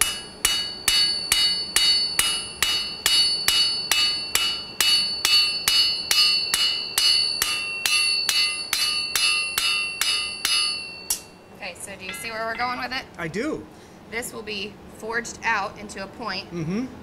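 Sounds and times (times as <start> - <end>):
hammer ringing on anvil: 0.0 - 12.9.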